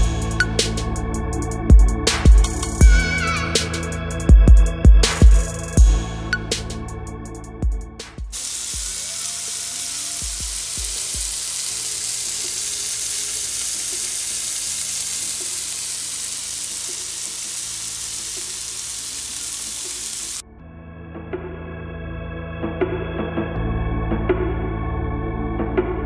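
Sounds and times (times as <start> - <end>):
meat sizzling in skillet: 8.3 - 20.4.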